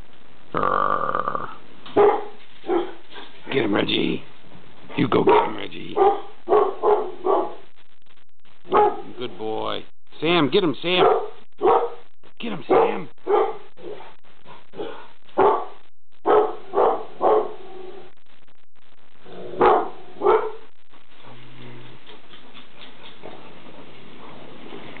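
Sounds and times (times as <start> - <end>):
dog barking: 1.9 - 3.3, 5.2 - 7.6, 8.7 - 9.2, 11.0 - 12.0, 12.7 - 18.0, 19.6 - 21.4.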